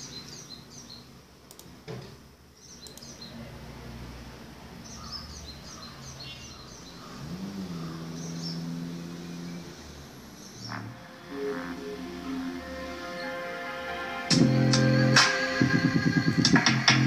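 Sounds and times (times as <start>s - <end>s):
birds chirping: 0.0s - 1.2s, 2.4s - 3.5s, 4.6s - 13.6s
faint clicks: 1.5s - 1.7s, 2.8s - 3.1s
low tone gliding up: 10.7s - 13.5s.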